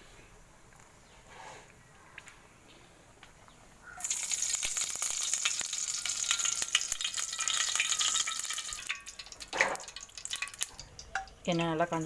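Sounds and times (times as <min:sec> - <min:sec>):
hot oil sizzling and crackling: 0:04.0 - 0:12.0.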